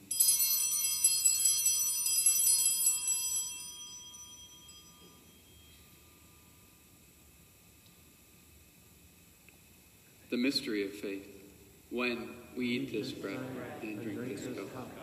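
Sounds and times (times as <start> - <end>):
altar bells jangling: 0.0 - 6.3.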